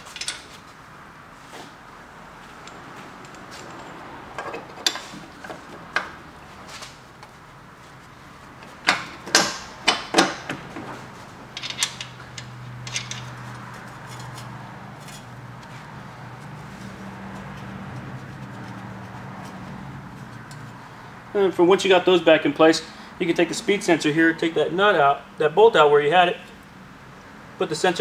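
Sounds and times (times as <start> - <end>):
metal suspension parts clanking: 0.0 - 0.8, 2.4 - 7.4, 8.0 - 20.8.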